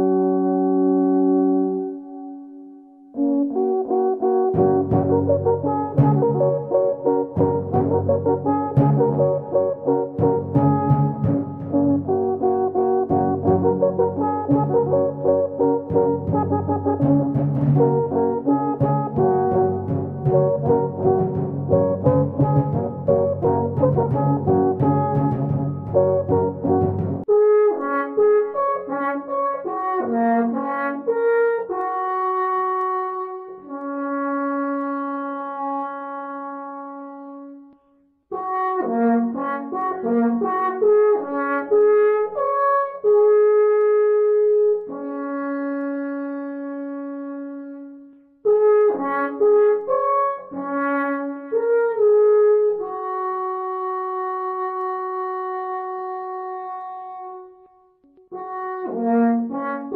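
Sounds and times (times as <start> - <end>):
brass horn melody: 0.0 - 59.9.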